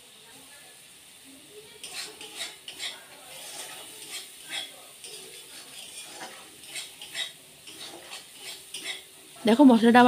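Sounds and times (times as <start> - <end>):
frying oil sizzling: 0.0 - 10.0
spatula scraping spice paste: 1.8 - 9.6.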